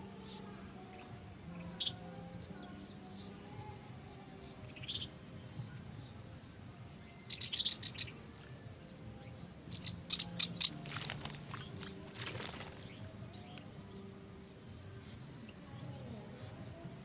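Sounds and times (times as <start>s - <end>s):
water splashing: 10.6s - 13.1s
wing flaps: 10.7s - 13.0s.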